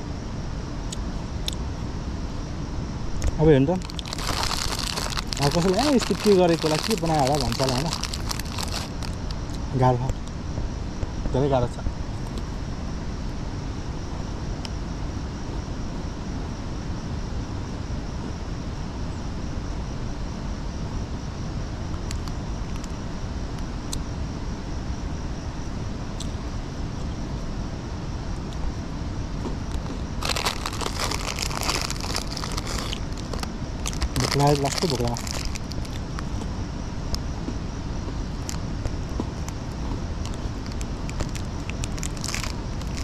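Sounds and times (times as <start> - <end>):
plastic wrapper crinkling: 3.8 - 9.5, 29.7 - 36.2, 40.2 - 43.0.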